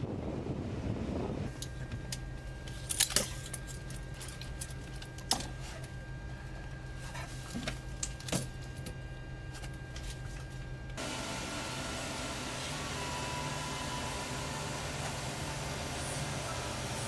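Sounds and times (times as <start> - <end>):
thin high whine: 8.6 - 17.0.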